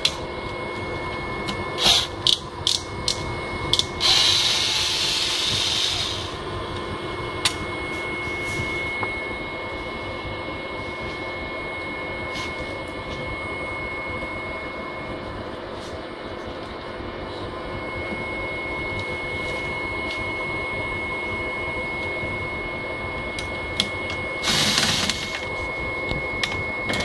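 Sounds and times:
high tone from motors: 0:00.0 - 0:27.0
photocopier humming: 0:23.8 - 0:27.0.

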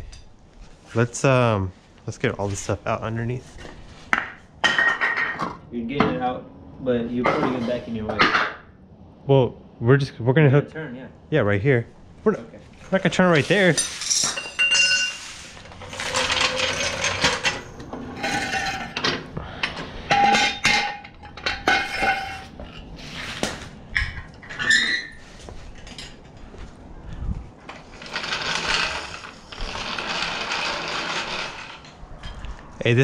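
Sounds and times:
metal scraping: 0:12.8 - 0:26.2, 0:27.7 - 0:32.5
metal tools clanking: 0:13.4 - 0:22.9.

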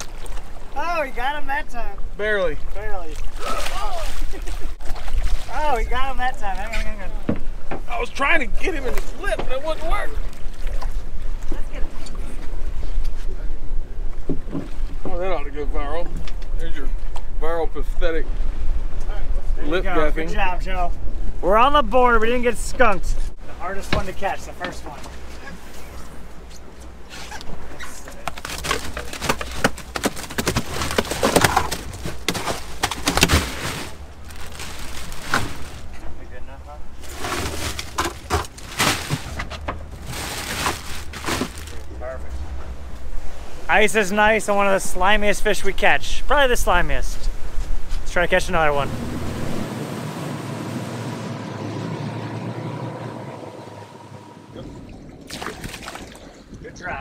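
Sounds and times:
wind and water hiss: 0:00.0 - 0:57.0
knocks and thuds on boat deck: 0:07.2 - 0:08.0, 0:09.2 - 0:09.6, 0:14.2 - 0:15.2, 0:23.8 - 0:25.2, 0:28.7 - 0:34.0
outboard engines idling: 0:30.6 - 0:55.1.

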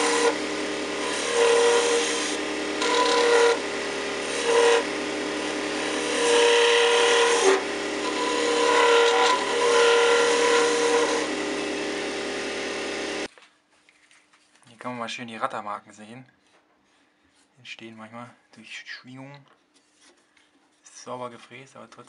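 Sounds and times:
turning tool cutting wood: 0:00.0 - 0:13.3
wood lathe running: 0:00.0 - 0:13.3.

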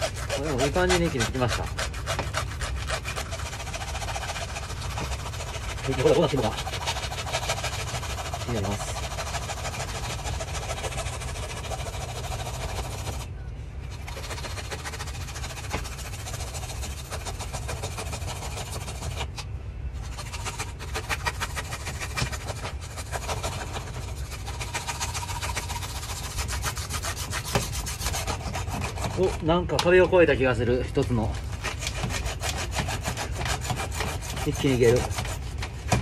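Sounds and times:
hand saw cutting lobster shell: 0:00.0 - 0:13.3, 0:14.0 - 0:30.1, 0:30.9 - 0:36.0.

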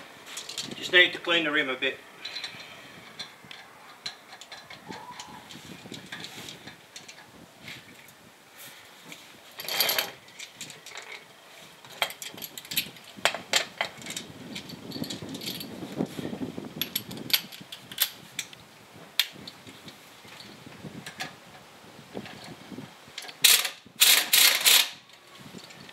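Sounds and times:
tools clattering: 0:09.1 - 0:11.2.

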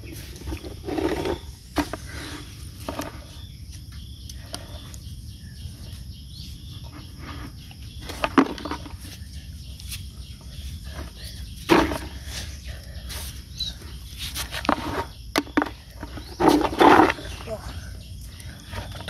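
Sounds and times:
scraping and knocking in wet sand: 0:14.1 - 0:17.4.

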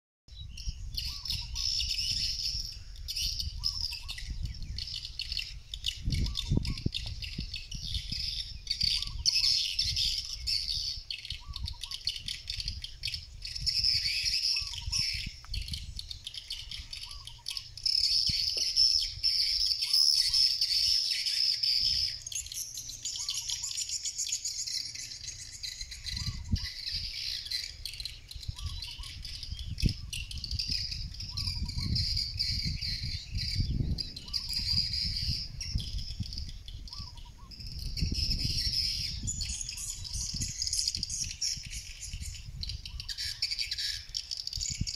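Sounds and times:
wind rumble on microphone: 0:00.3 - 0:44.9.

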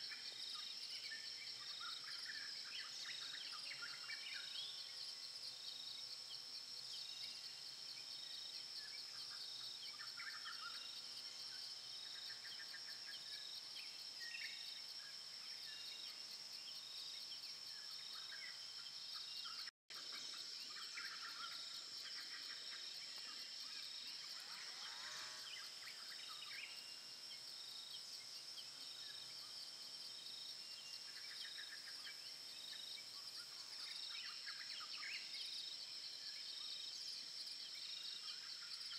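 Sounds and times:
high-pitched insect chorus: 0:00.0 - 0:38.9
pulsing insect call: 0:16.7 - 0:38.8.

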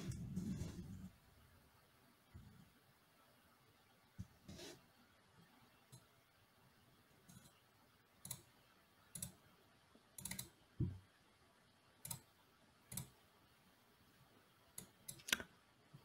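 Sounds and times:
mouse and keyboard clicks: 0:10.2 - 0:10.5, 0:14.8 - 0:15.5.

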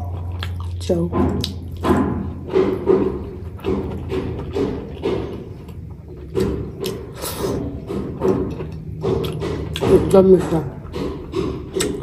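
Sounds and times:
wet chewing of food: 0:00.0 - 0:12.0.

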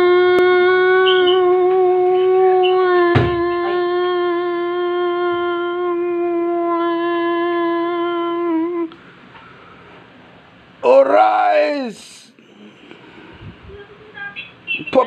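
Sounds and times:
person humming a long note: 0:00.0 - 0:09.0
thump: 0:03.1 - 0:03.4.

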